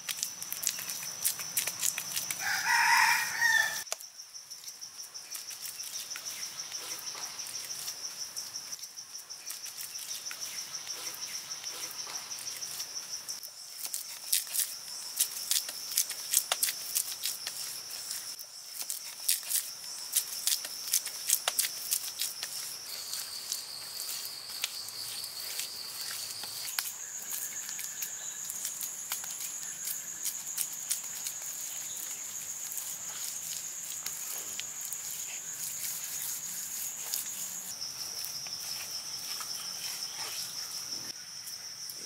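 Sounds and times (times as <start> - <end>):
hands slapping wet mud: 0.0 - 2.4, 13.8 - 17.6, 18.8 - 22.6
high-pitched insect drone: 0.2 - 42.0.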